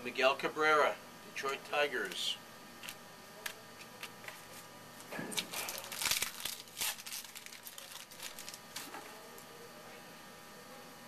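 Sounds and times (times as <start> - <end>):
wrapper tearing and crinkling: 5.4 - 9.0.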